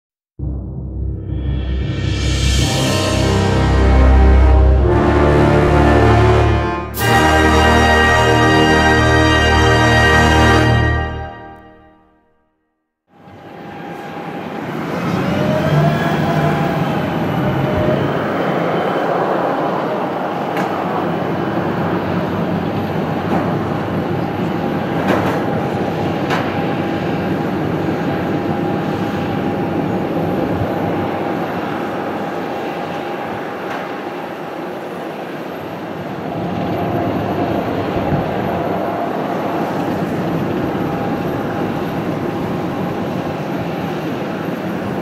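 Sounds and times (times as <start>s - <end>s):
jet engines rushing hum: 13.2s - 45.0s.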